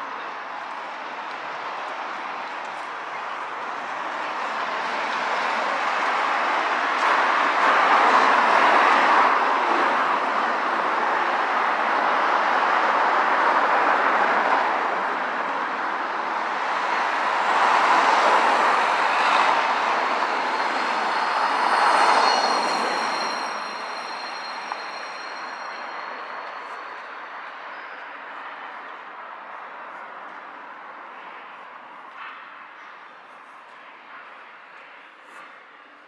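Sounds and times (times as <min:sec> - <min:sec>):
rail vehicle rushing past: 0:03.4 - 0:28.8
high wheel squeal: 0:18.6 - 0:28.3.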